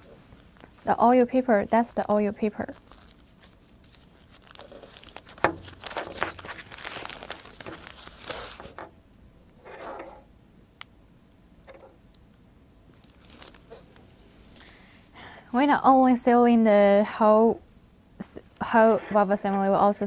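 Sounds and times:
paper crinkling and rustling: 0.0s - 8.9s, 13.0s - 14.0s.

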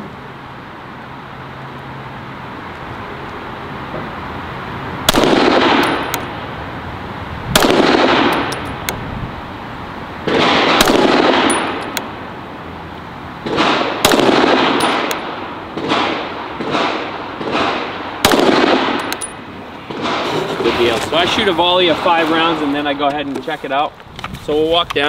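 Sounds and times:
pistol shots with echo: 5.1s - 6.2s, 7.6s - 8.8s, 10.3s - 12.0s, 13.5s - 20.2s.

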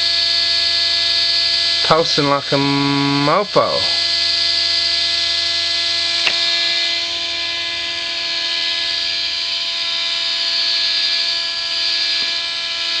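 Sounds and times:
motor buzzing whine: 0.0s - 13.0s
sharp click: 6.2s - 6.5s.

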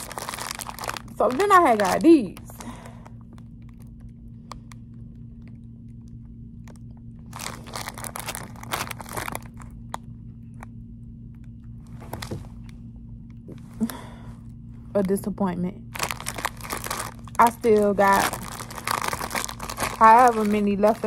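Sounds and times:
plastic package crinkling: 0.0s - 10.7s, 12.1s - 12.4s, 15.9s - 21.0s.

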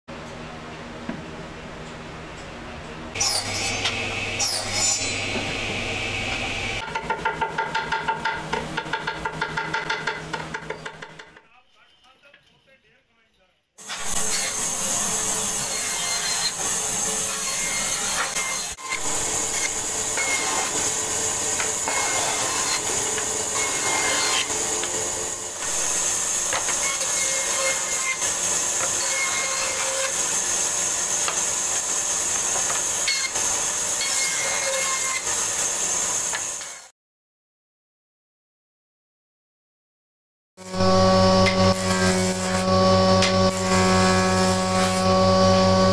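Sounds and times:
band saw cutting wood: 3.1s - 6.9s, 13.8s - 36.9s, 40.6s - 45.9s.

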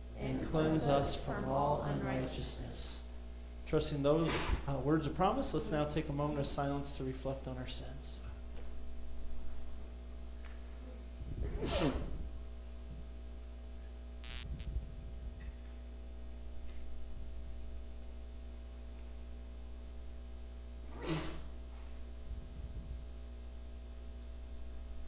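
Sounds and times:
electrical mains hum: 0.0s - 25.0s
sound falling in pitch: 14.2s - 14.6s.

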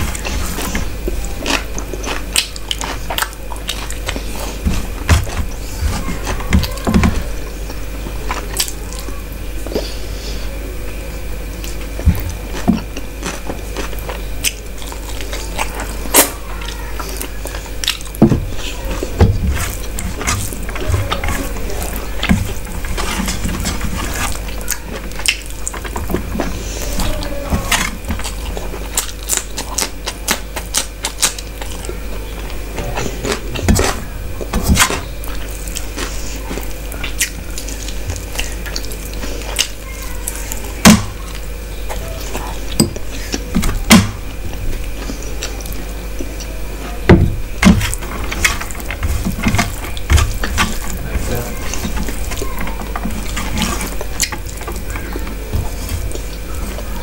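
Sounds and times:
wet chewing and lip smacks: 0.1s - 5.6s, 11.5s - 18.2s, 28.2s - 46.5s.

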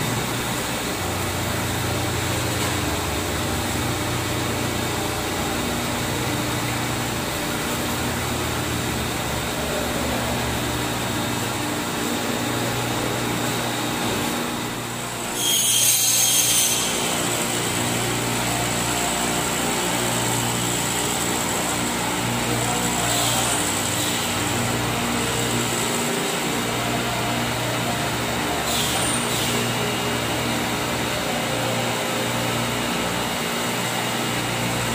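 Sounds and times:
glass-edging machine humming: 0.0s - 34.9s
high-pitched screech: 15.3s - 17.6s.

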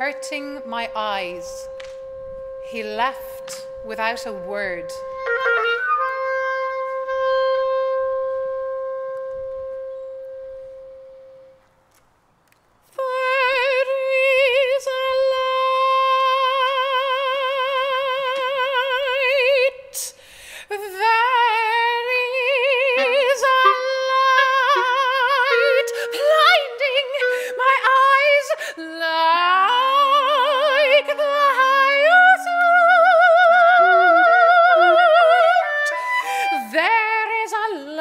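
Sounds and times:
soprano singing with vibrato: 0.0s - 1.8s, 12.9s - 38.0s
clarinet: 0.0s - 11.7s, 21.4s - 37.4s
long held note: 0.0s - 11.7s, 22.3s - 28.7s, 33.4s - 36.3s.

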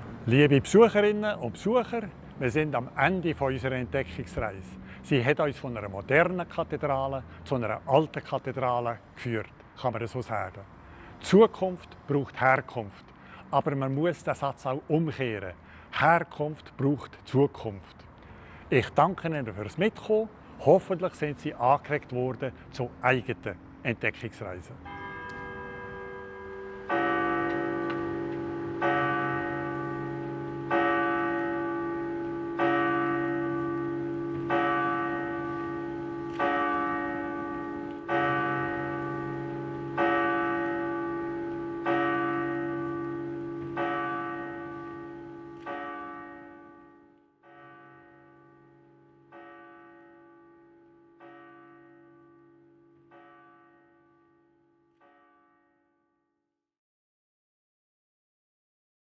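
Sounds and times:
church bell tolling: 24.8s - 55.8s.

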